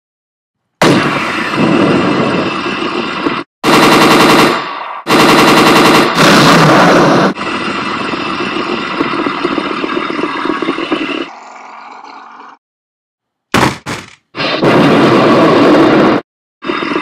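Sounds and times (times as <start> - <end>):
machine-gun fire: 3.6 - 7.4, 13.6 - 15.5.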